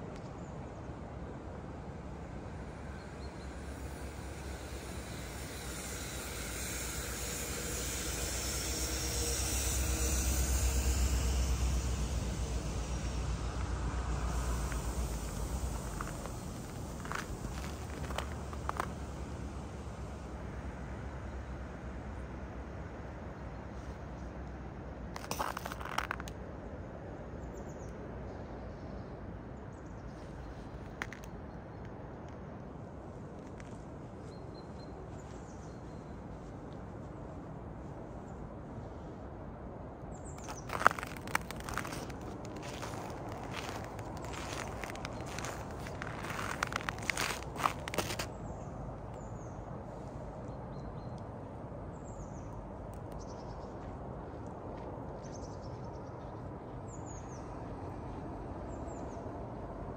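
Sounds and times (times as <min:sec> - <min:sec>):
passing vehicle rumble: 0:00.9 - 0:27.3, 0:40.3 - 0:55.2.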